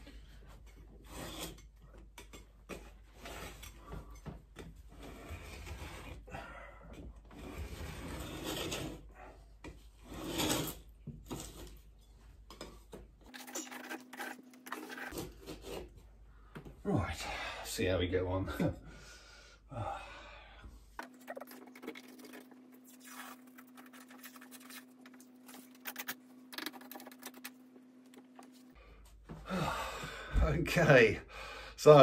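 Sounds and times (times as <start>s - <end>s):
scraper scratching wallpaper: 4.9s - 6.2s, 7.4s - 9.0s, 10.0s - 11.7s, 13.3s - 15.9s, 21.0s - 28.7s.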